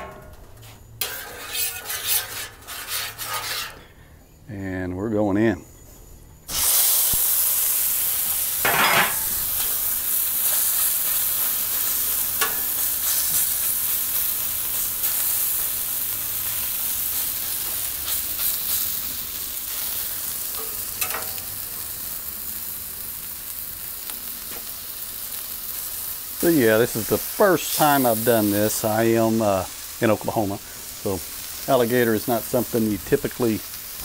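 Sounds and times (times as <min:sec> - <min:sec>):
steel spatula scraping: 0:00.0 - 0:03.9
meat sizzling on a griddle: 0:06.5 - 0:34.0.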